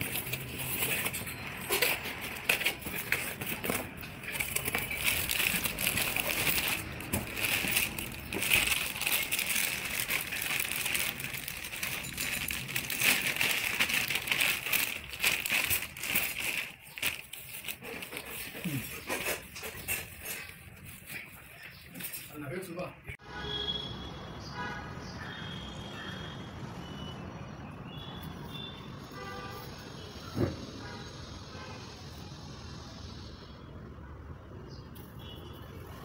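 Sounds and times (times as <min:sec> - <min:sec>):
plastic packaging crinkling: 0:00.0 - 0:22.2.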